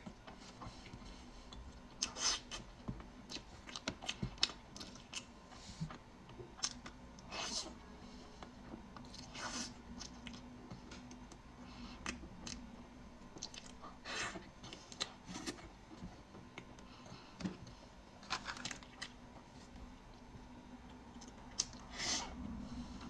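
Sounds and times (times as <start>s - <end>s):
biting and chewing soft food: 0.0s - 22.4s.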